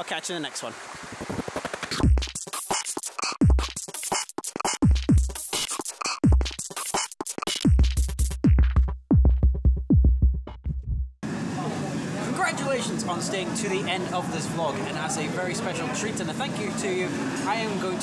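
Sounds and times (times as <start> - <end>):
music with sliding bass kicks: 1.9 - 11.2.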